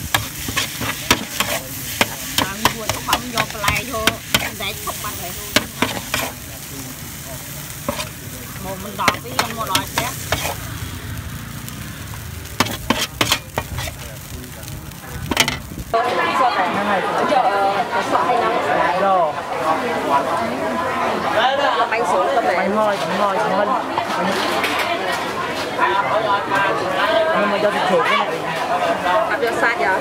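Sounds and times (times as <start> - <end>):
utensil clacking against pan: 0.0 - 4.6, 9.0 - 10.6, 12.6 - 13.9, 15.3 - 15.7
food sizzling in a pan: 0.0 - 16.7.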